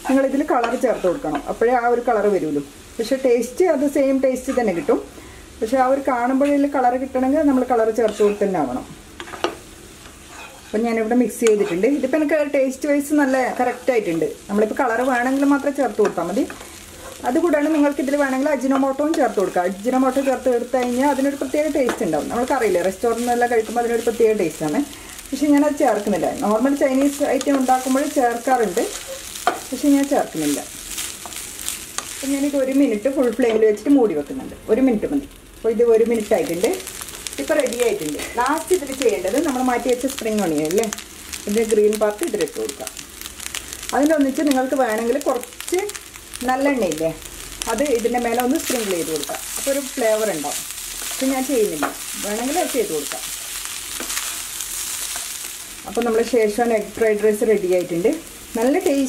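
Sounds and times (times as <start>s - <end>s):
light sizzle: 0.0s - 59.0s
spatula scraping a pan: 0.6s - 1.5s, 9.2s - 12.1s, 16.0s - 18.0s, 27.0s - 29.7s
spatula scraping pan with squeaks: 10.2s - 10.8s
spatula tapping pan: 28.9s - 29.7s, 51.8s - 52.0s.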